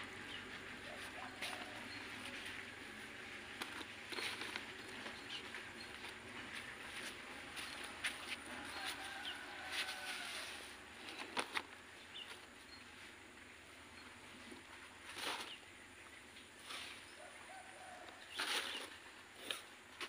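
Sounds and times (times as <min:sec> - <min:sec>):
potting soil rustling and crunching: 0:00.0 - 0:12.5, 0:14.9 - 0:15.7, 0:17.9 - 0:20.0.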